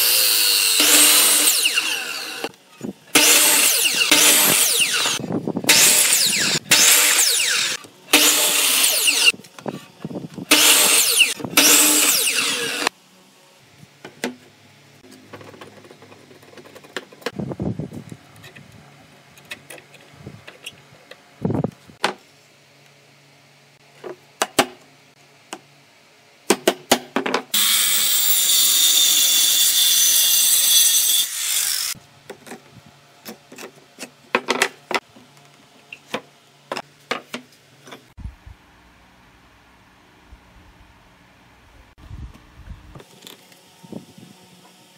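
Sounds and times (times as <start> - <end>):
circular saw cutting wood: 0.0 - 9.4, 10.5 - 12.9, 27.5 - 32.0.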